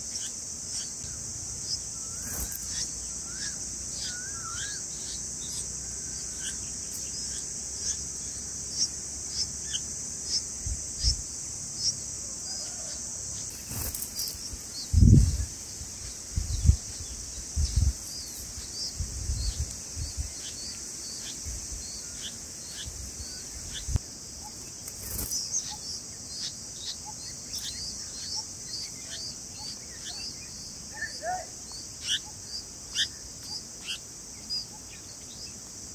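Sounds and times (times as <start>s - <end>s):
crickets droning: 0.0s - 35.9s
nestlings chirping: 1.6s - 12.0s, 12.6s - 35.5s
lower bird call: 1.7s - 11.2s.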